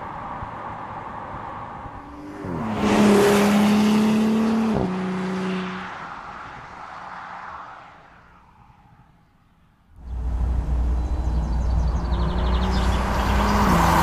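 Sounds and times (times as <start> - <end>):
road and tyre noise: 0.0 - 14.0
car engine accelerating: 2.0 - 5.9, 10.0 - 14.0.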